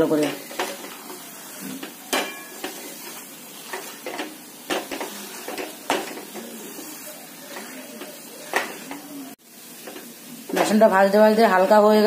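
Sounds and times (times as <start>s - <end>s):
low sizzle: 0.0s - 12.0s
metal spatula scraping metal pan: 0.1s - 9.1s.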